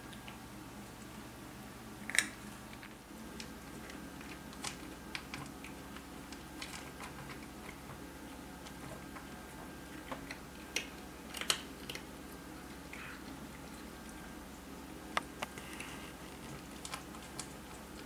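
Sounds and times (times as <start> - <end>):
cat crunching dry kibble: 2.0 - 8.0, 8.6 - 12.1, 15.1 - 18.0.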